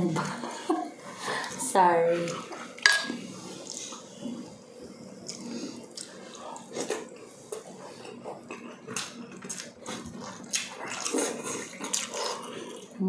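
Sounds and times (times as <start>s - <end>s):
wet chewing and mouth smacks: 5.2s - 13.0s.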